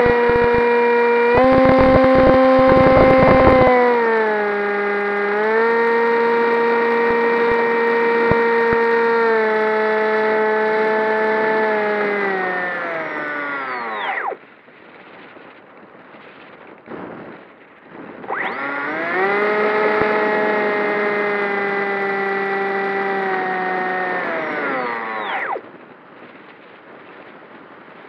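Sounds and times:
electric motor whine: 0:00.0 - 0:14.4, 0:18.2 - 0:25.8.

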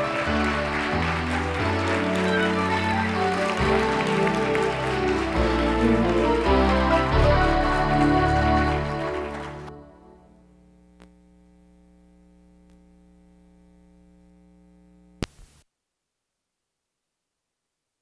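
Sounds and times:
videotape playback electrical hum: 0:10.2 - 0:15.7
static: 0:10.4 - 0:15.7
faint click: 0:11.0 - 0:11.2.

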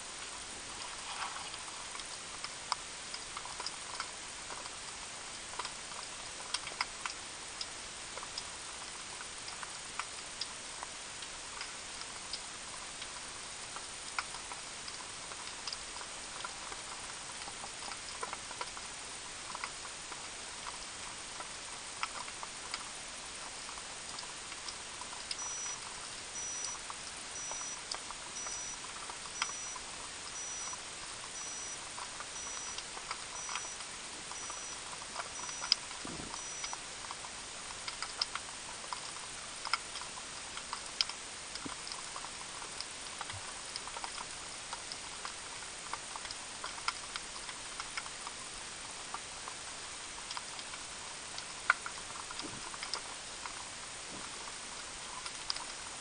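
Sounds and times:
sharp clicks and crackles: 0:00.1 - 0:56.0
faint high beep: 0:25.4 - 0:25.8, 0:26.4 - 0:26.8, 0:27.4 - 0:27.8, 0:28.4 - 0:28.8, 0:29.4 - 0:29.8, 0:30.4 - 0:30.8, 0:31.4 - 0:31.8, 0:32.4 - 0:32.8, 0:33.4 - 0:33.8, 0:34.4 - 0:36.8.

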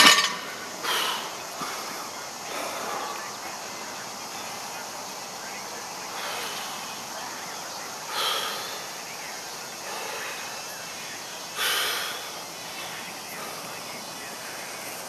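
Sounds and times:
forceful exhalations: 0:00.3 - 0:03.4, 0:08.1 - 0:09.0, 0:11.6 - 0:13.8
man breathing hard: 0:00.4 - 0:04.7, 0:05.9 - 0:15.0.

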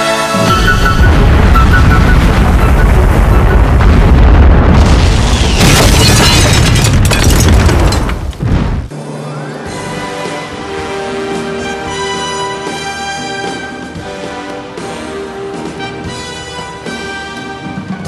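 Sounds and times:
music: 0:00.0 - 0:03.8, 0:08.9 - 0:18.0
deep rumbling explosion boom: 0:00.6 - 0:08.9.

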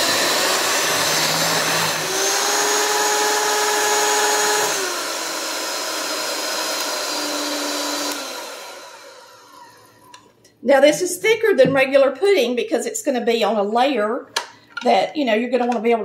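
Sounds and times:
electric hand mixer whining: 0:00.0 - 0:10.2.

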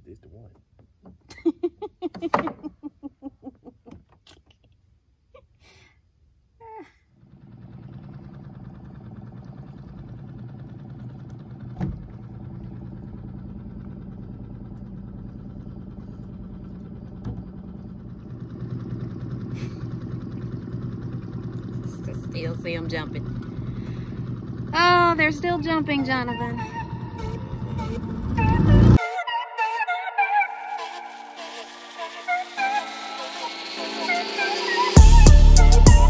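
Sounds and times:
outboard motor running: 0:07.1 - 0:29.0.

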